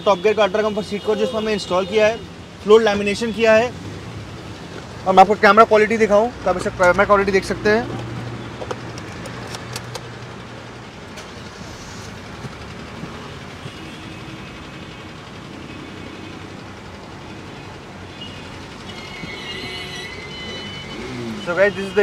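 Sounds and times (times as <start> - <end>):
vehicle rumbling: 0.0 - 22.0.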